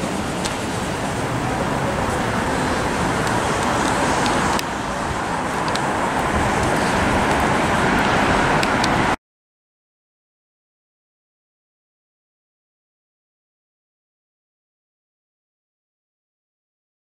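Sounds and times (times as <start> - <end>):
street traffic: 0.0 - 9.2.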